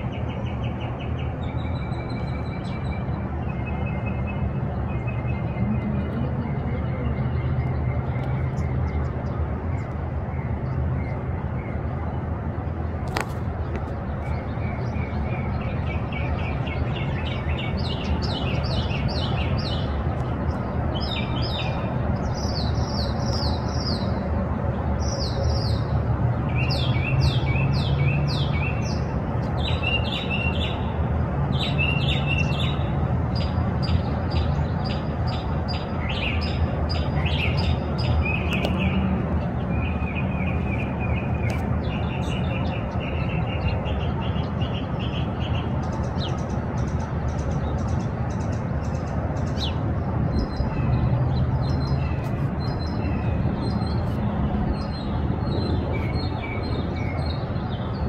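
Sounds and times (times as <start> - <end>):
steady low rumble: 0.0 - 23.0
songbirds chirping: 0.0 - 58.0.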